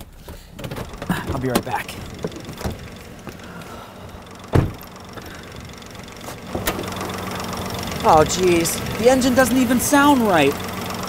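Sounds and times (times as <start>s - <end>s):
car engine idling: 0.0s - 11.0s
car door slamming: 0.2s - 3.4s, 4.5s - 5.0s, 6.3s - 6.9s.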